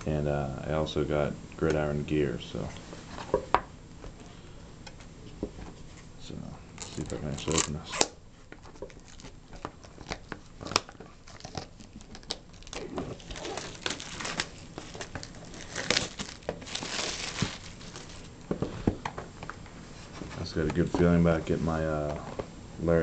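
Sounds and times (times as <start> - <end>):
cellophane crinkling: 6.8 - 18.6.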